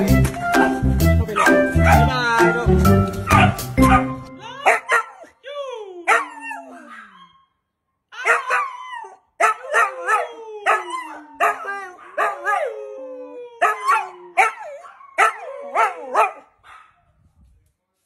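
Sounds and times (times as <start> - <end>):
dog yelping: 3.3 - 5.3, 6.1 - 7.5, 8.2 - 12.8, 13.6 - 16.9
dog howling: 6.1 - 7.4, 8.2 - 16.4.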